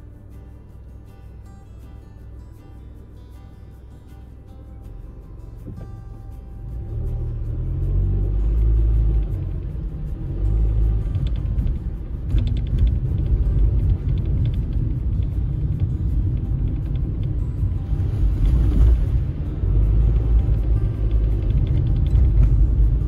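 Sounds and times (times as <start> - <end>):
light background music: 0.0 - 23.0
tyres and engine rumble: 0.0 - 23.0.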